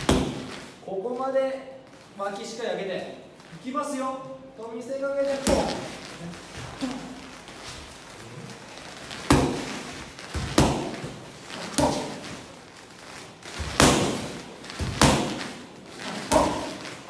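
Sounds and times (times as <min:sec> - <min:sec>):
boxing gloves punching mitts: 0:00.0 - 0:00.8, 0:05.2 - 0:06.0, 0:08.9 - 0:17.0.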